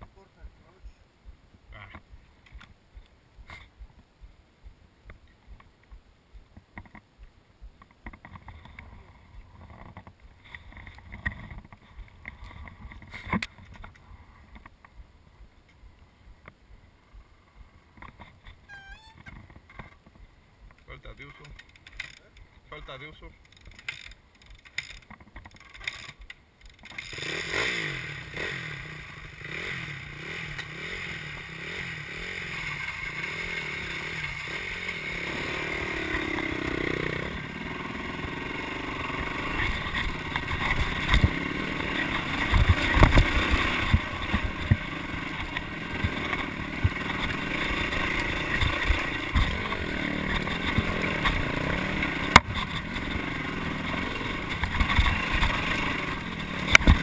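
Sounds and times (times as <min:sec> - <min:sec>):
knocks and rattles from bumps: 0:23.4 - 0:27.0, 0:39.6 - 0:57.0
dirt bike engine revving: 0:26.9 - 0:57.0.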